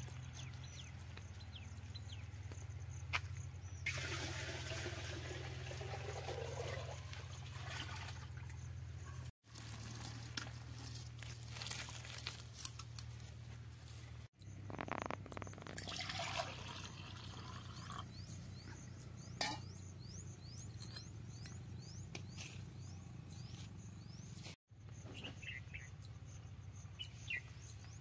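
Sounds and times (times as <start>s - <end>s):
water pouring and splashing: 3.9s - 8.6s, 15.6s - 18.0s
thick mash slopping onto grass: 9.4s - 13.2s.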